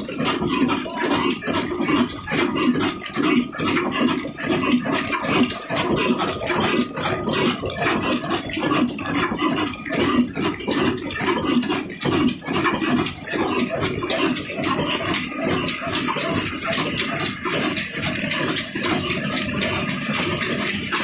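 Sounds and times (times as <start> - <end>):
diesel engine clattering: 0.0 - 21.0.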